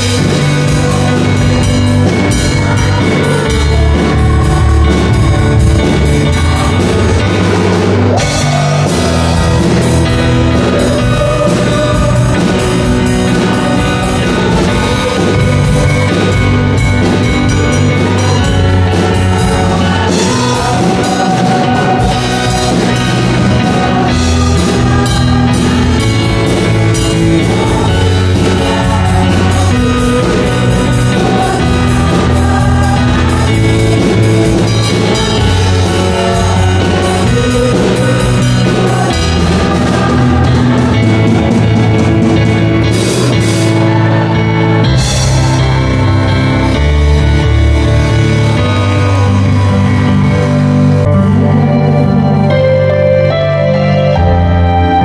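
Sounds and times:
worship band playing: 0:00.0 - 0:55.0.

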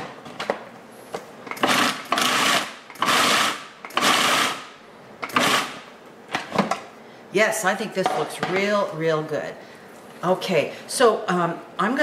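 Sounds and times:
food processor motor chopping: 0:01.6 - 0:04.7, 0:05.3 - 0:05.8.

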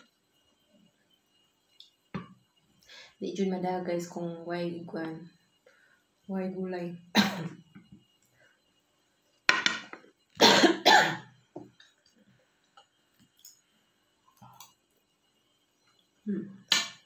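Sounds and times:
woman coughing: 0:07.1 - 0:07.6, 0:10.4 - 0:11.3.

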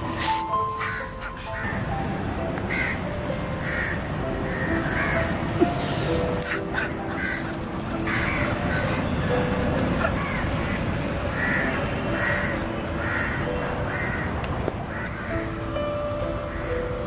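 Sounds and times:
crow cawing: 0:00.8 - 0:01.8, 0:02.7 - 0:03.0, 0:03.6 - 0:05.4, 0:06.4 - 0:09.3, 0:10.0 - 0:15.4.

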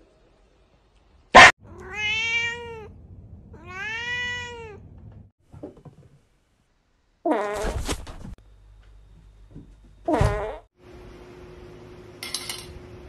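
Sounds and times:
cat meowing: 0:01.6 - 0:02.9, 0:03.6 - 0:04.8.

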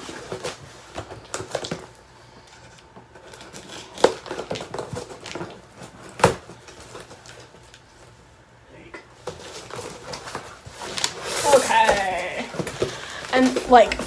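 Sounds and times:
cardboard scraping and rustling: 0:09.2 - 0:14.0.

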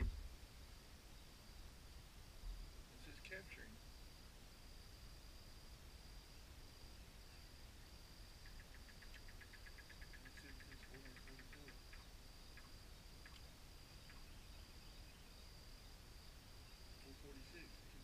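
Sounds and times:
insects chirping: 0:00.0 - 0:18.0
faint ticks: 0:08.4 - 0:14.3.

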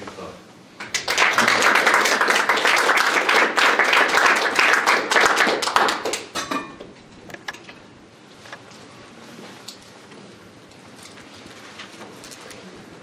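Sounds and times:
audience applauding: 0:00.8 - 0:06.4.

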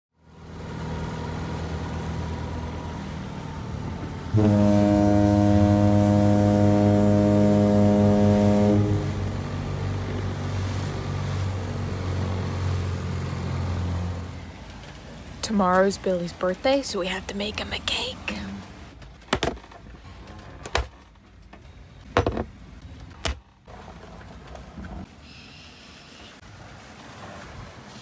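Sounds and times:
low engine rumble: 0:00.2 - 0:19.2
ship's horn blast: 0:04.2 - 0:11.4.

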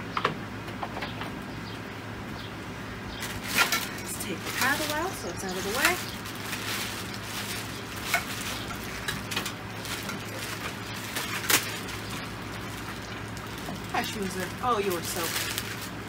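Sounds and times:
plastic wrapping crinkling: 0:03.2 - 0:16.0.

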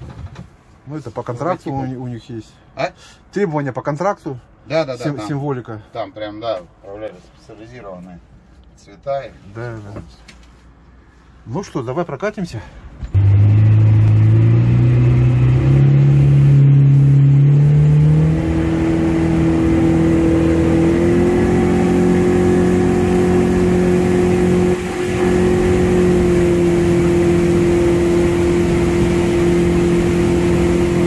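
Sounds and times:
outboard motor running: 0:13.2 - 0:31.0.

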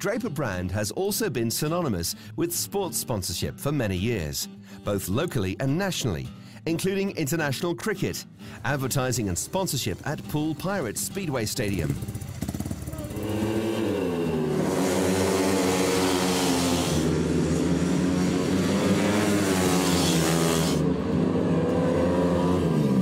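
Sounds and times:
racing motorcycle engines revving: 0:09.0 - 0:23.0.

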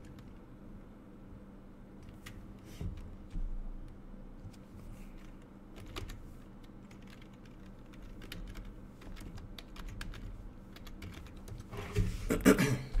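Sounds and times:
computer keyboard keys clicking: 0:05.2 - 0:11.7.

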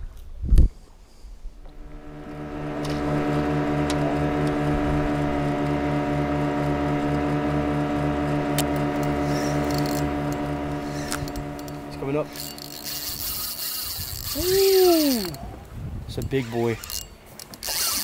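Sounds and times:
outboard motor running: 0:01.6 - 0:15.4.

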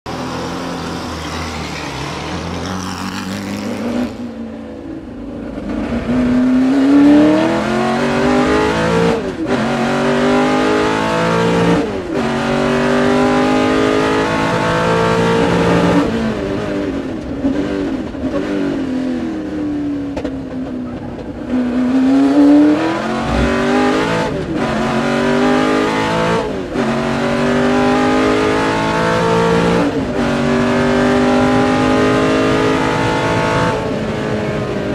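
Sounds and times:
race car engine upshifting: 0:20.1 - 0:34.8.

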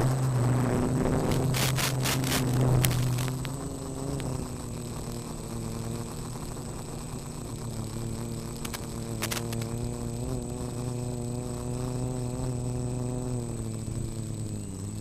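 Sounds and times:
quadcopter motors humming: 0:00.0 - 0:15.0
thin high whine: 0:00.0 - 0:15.0
brief crackles: 0:01.2 - 0:03.5, 0:08.6 - 0:09.7.

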